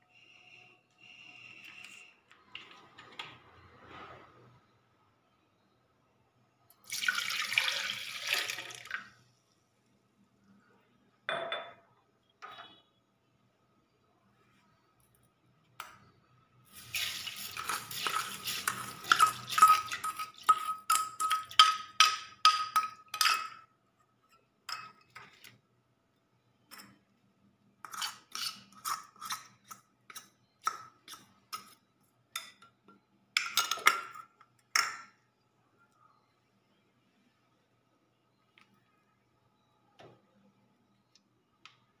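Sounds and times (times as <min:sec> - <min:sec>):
steel spoon clinking on bowl: 0:17.4 - 0:23.7.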